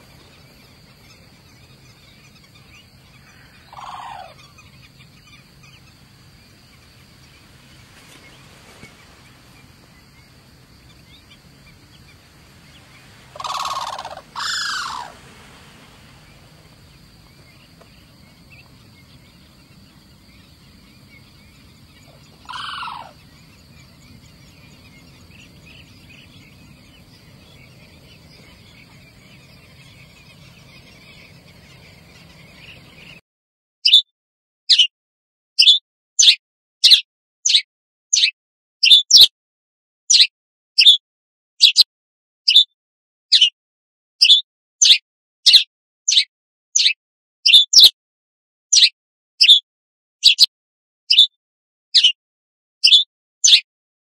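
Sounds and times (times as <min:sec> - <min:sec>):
cranes calling: 0:00.0 - 0:33.2
faint steady background noise: 0:00.0 - 0:33.2.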